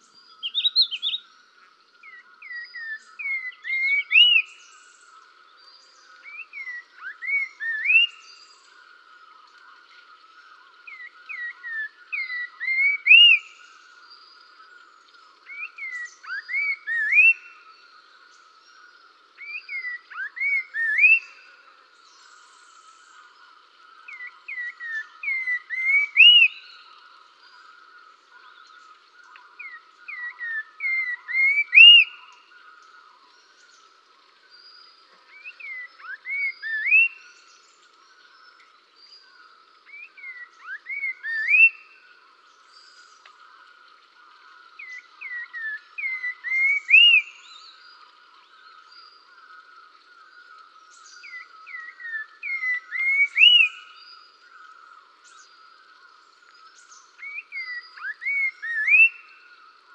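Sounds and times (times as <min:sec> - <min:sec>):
songbird whistling: 0:00.0 - 0:01.3, 0:02.0 - 0:05.0, 0:05.8 - 0:08.7, 0:10.9 - 0:13.9, 0:15.4 - 0:17.8, 0:19.4 - 0:23.2, 0:24.0 - 0:27.0, 0:28.4 - 0:32.5, 0:35.3 - 0:37.8, 0:39.8 - 0:42.0, 0:44.8 - 0:47.9, 0:50.8 - 0:55.6, 0:56.5 - 0:59.5
trilling bird chorus: 0:00.0 - 0:59.9.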